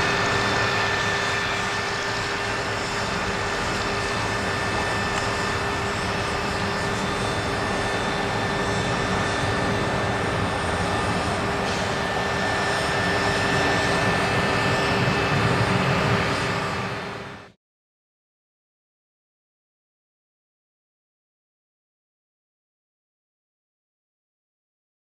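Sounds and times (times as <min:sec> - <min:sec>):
jet engine hiss and whine: 0:00.0 - 0:17.6.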